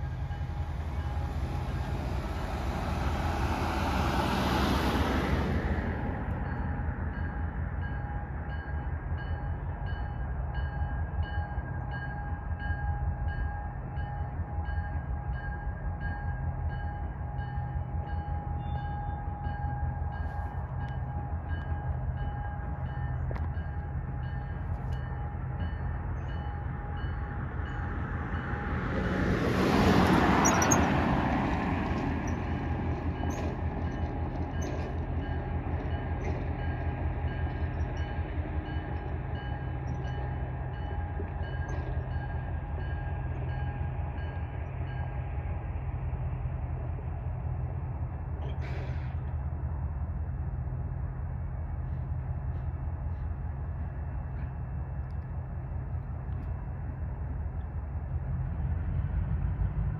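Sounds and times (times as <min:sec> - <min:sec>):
broad rush of train noise: 0:00.0 - 0:59.9
diesel locomotive engine throb: 0:00.0 - 0:59.9.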